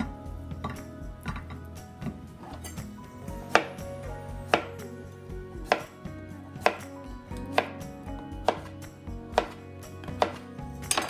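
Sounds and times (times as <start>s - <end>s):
knife chopping on cutting board: 3.5s - 3.8s, 5.6s - 5.9s, 6.6s - 6.9s, 7.5s - 8.7s, 9.3s - 11.0s.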